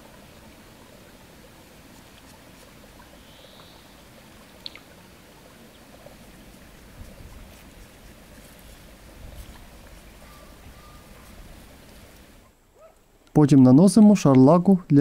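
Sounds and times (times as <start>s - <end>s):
small tick: 4.6s - 4.9s
wind rumble on microphone: 6.8s - 12.4s.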